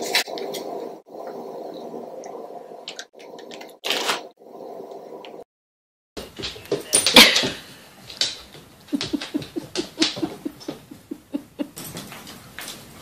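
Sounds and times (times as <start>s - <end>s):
knocks and scuffs on wooden floor: 6.2s - 11.0s.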